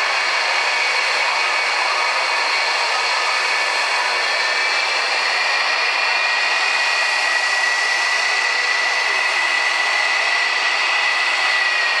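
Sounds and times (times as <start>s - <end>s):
jet engines running with high whine: 0.0s - 12.0s.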